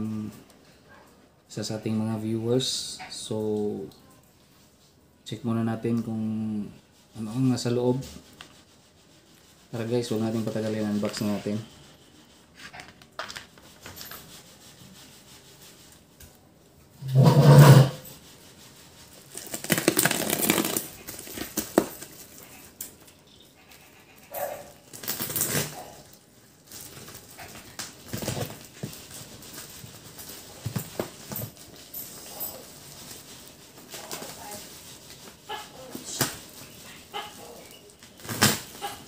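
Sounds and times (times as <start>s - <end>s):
plastic crinkling: 19.1s - 23.0s, 24.8s - 39.0s.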